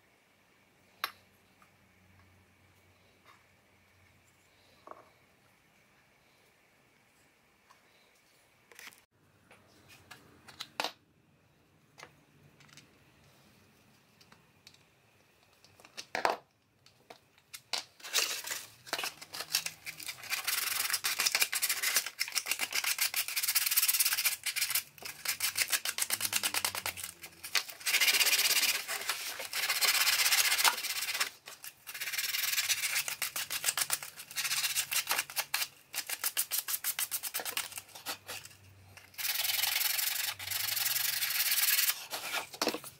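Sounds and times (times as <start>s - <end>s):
hand sanding with sandpaper: 20.0s - 37.7s.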